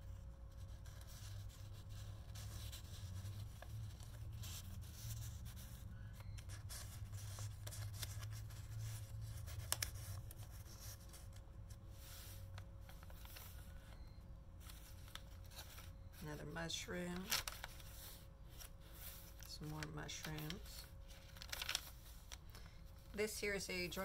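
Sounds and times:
steady low hum: 0:00.0 - 0:24.0
paper rustling and sliding: 0:06.4 - 0:14.0, 0:14.6 - 0:16.0, 0:17.2 - 0:23.1.

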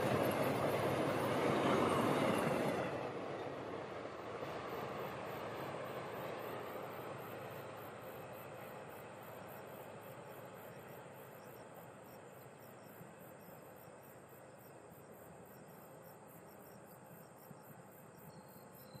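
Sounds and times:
distant passenger train: 0:00.0 - 0:19.0
insects chirping in rapid pulses: 0:04.3 - 0:19.0.

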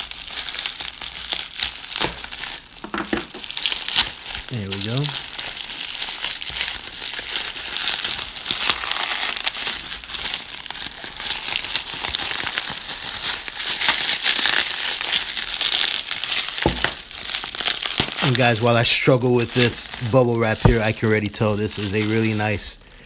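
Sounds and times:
bubble wrap crinkling and clicking: 0:00.0 - 0:22.7.

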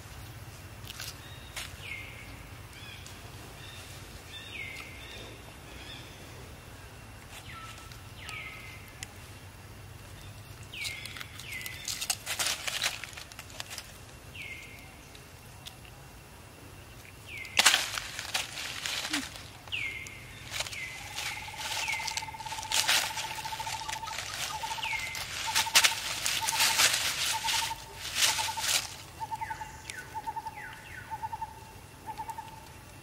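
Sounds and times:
steady low hum: 0:00.0 - 0:33.0
sharp crackles: 0:10.0 - 0:16.0, 0:16.9 - 0:30.8.

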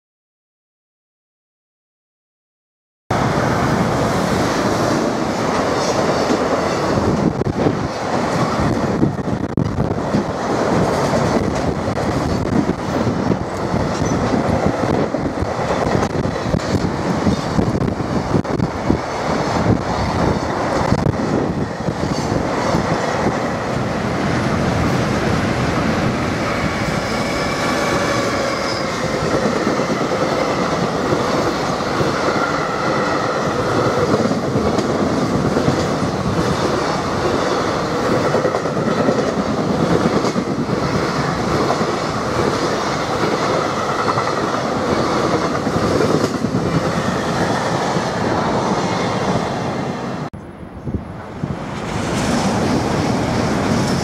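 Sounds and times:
train wheel squeal: 0:13.9 - 0:14.4, 0:26.4 - 0:30.0.

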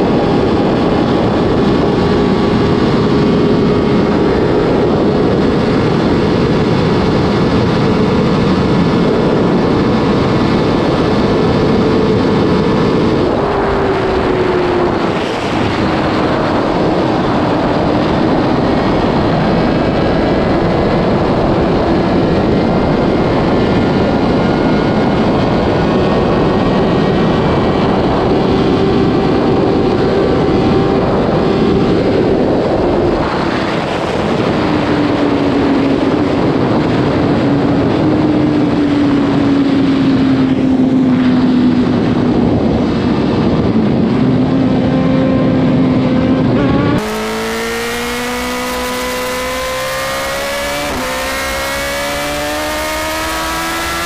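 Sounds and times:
motorcycle engine revving: 0:00.0 - 0:54.0
motorcycle engine running: 0:00.0 - 0:54.0
wind noise rushing: 0:00.0 - 0:54.0.

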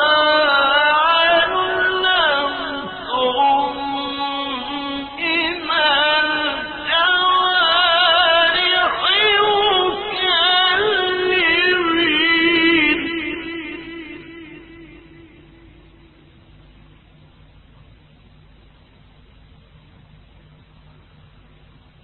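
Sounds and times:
man reciting melodically: 0:00.0 - 0:15.7.

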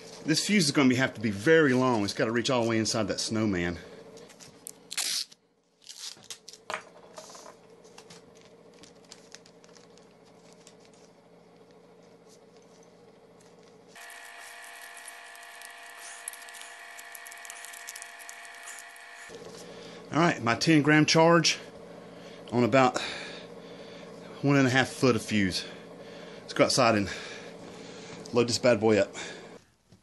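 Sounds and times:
background hum: 0:00.0 - 0:30.0
plastic bag crinkling: 0:04.4 - 0:06.7, 0:08.0 - 0:11.2, 0:13.4 - 0:19.2.

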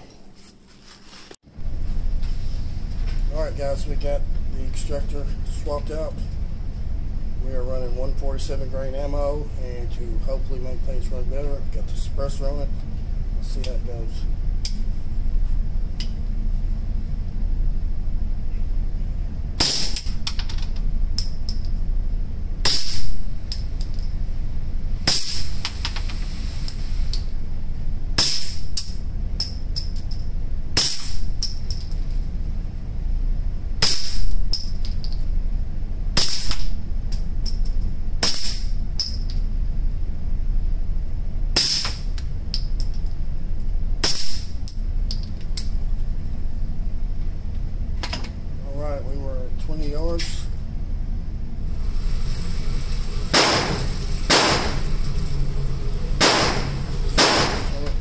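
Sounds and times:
steady low hum: 0:00.0 - 0:58.0
suppressed gunshots: 0:56.2 - 0:57.7.

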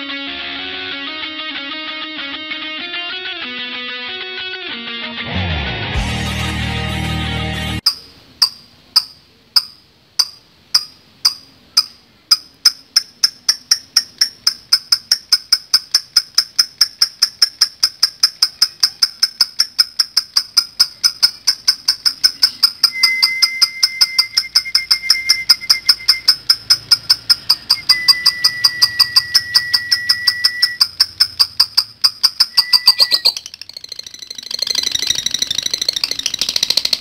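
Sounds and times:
lovebird chattering high chirps: 0:11.7 - 0:37.0.

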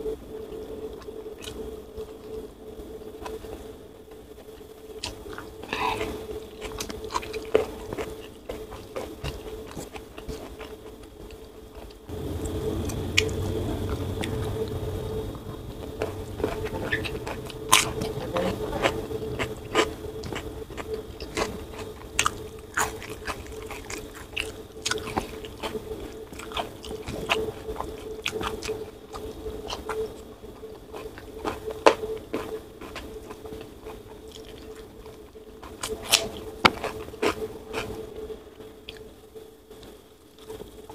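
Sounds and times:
steady low hum: 0:00.0 - 0:40.9
chewing and crunching: 0:00.4 - 0:40.9
low rumble: 0:12.1 - 0:26.2.

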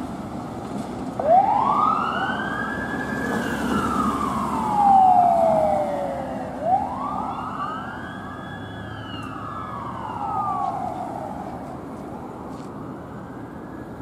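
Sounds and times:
road traffic noise: 0:00.0 - 0:14.0
fire engine siren wailing: 0:01.1 - 0:11.9.

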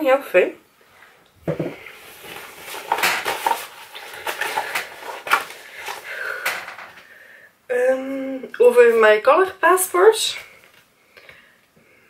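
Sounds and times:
packaging rustling and crinkling: 0:01.7 - 0:07.0.

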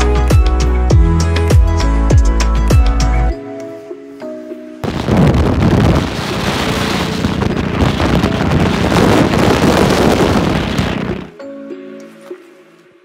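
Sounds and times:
wind rushing over microphone: 0:04.8 - 0:11.4.

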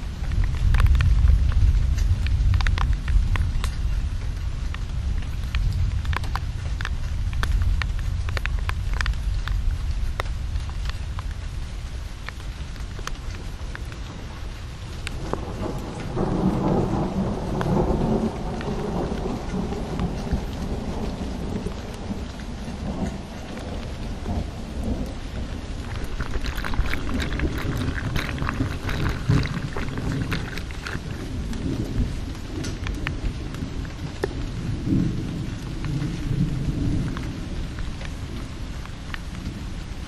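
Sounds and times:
heavy rain falling: 0:00.0 - 0:40.0
water pouring from outlet: 0:23.5 - 0:33.0.

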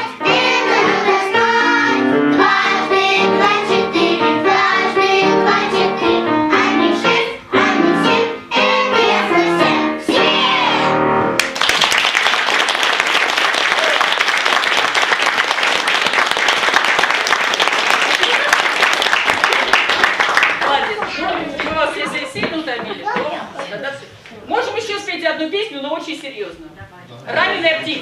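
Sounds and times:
children's choir singing: 0:00.0 - 0:11.1
audience applause: 0:11.4 - 0:21.7.

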